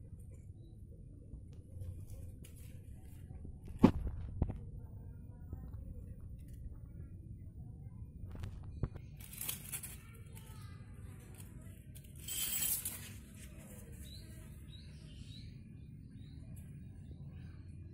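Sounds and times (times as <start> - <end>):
leaves rustling: 9.2 - 10.3.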